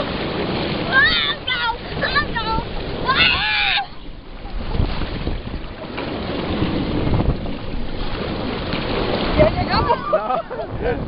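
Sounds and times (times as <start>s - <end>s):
water rushing under raft: 0.0s - 11.0s
wind noise on microphone: 0.0s - 11.0s.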